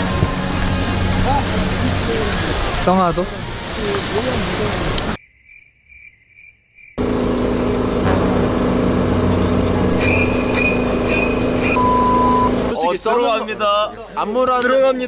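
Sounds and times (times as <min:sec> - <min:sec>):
crickets chirping: 0:05.2 - 0:07.0
loud steady hum with rumble: 0:07.0 - 0:12.8.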